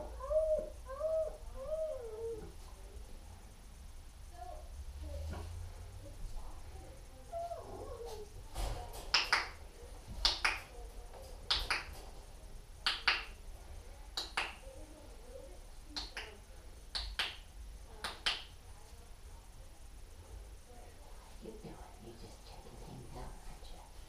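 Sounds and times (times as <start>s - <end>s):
finger snaps: 9.1s - 9.6s, 10.2s - 10.7s, 11.5s - 11.9s, 12.8s - 13.4s, 14.2s - 14.6s, 16.0s - 18.6s.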